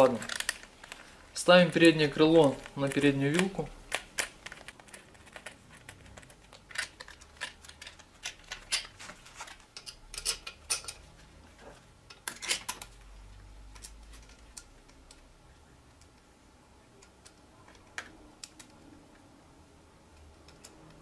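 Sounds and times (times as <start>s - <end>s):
faint handling noise: 0.0s - 15.3s.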